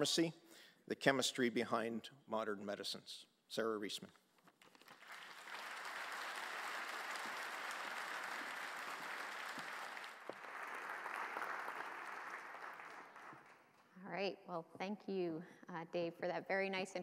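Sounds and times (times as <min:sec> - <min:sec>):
audience applauding: 0:04.6 - 0:13.8.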